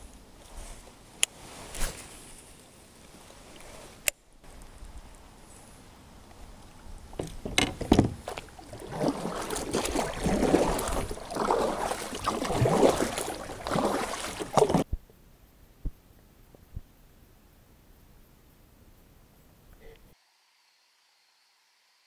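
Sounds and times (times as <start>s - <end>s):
paddle splashing in water: 7.1s - 14.9s
sharp knocks: 7.2s - 8.4s.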